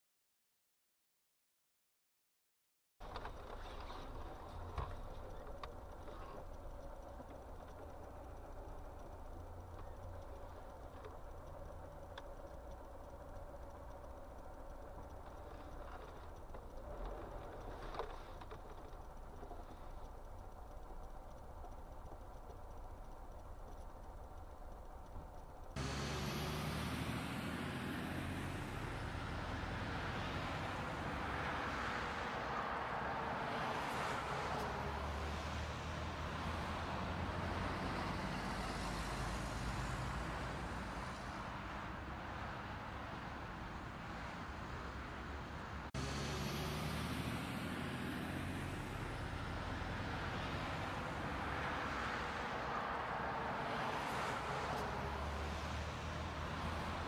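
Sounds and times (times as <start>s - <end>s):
car engine idling: 3.0s - 31.6s.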